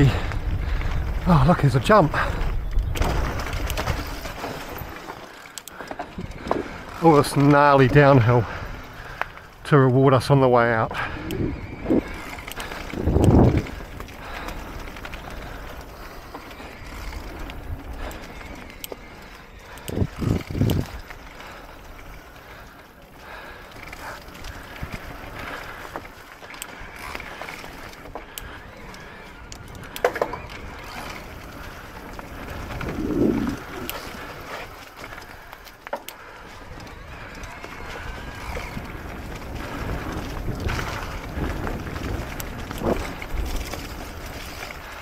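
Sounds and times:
bike tyres on dirt trail: 0:00.0 - 0:45.0
knocks and clicks from bike: 0:29.7 - 0:31.4.

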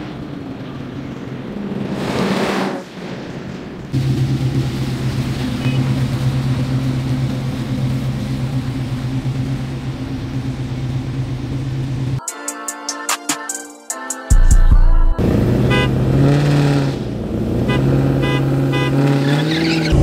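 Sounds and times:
car engines running at low revs: 0:00.0 - 0:12.2, 0:15.2 - 0:20.0
music: 0:12.2 - 0:15.2.

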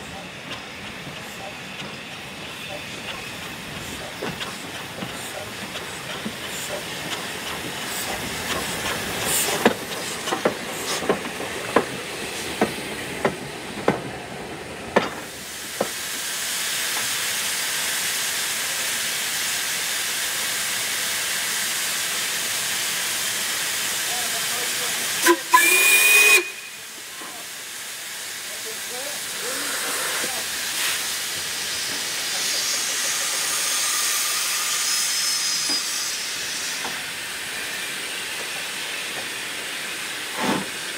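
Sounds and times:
steam locomotive clacks: 0:00.0 - 0:16.0, 0:28.5 - 0:40.9
loud hiss of escaping steam: 0:00.3 - 0:40.9.

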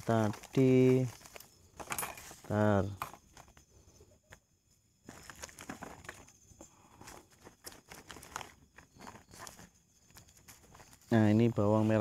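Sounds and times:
plastic bag rustling: 0:00.0 - 0:02.6, 0:05.1 - 0:06.3, 0:07.1 - 0:11.1.

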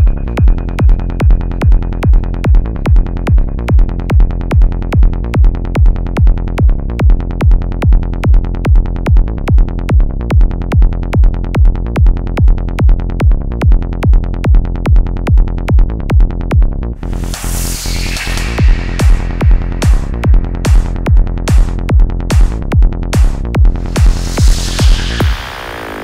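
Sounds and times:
electronic trance music: 0:00.0 - 0:06.1, 0:17.0 - 0:26.0
steady kick drum: 0:00.0 - 0:26.0.

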